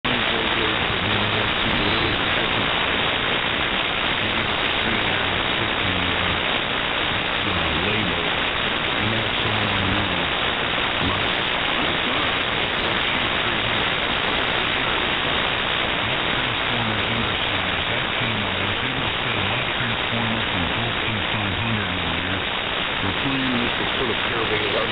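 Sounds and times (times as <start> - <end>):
faint wavering radio voices: 0.0 - 24.9
radio static hiss: 0.0 - 24.9.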